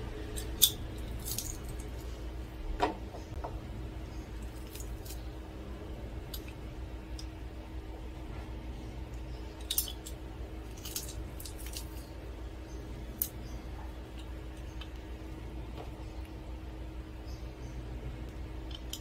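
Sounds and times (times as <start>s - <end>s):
low background hum: 0.0s - 19.0s.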